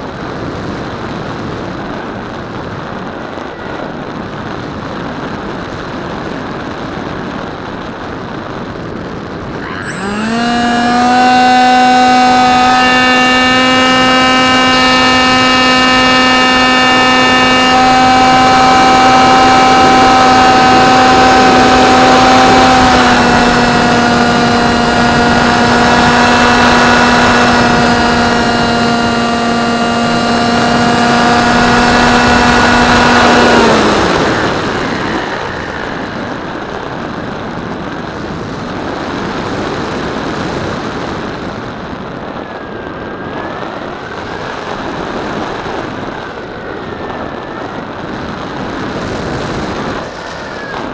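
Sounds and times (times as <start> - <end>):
wind rush: 0.0 - 50.9
model plane motor whining: 9.5 - 41.3, 42.2 - 50.9.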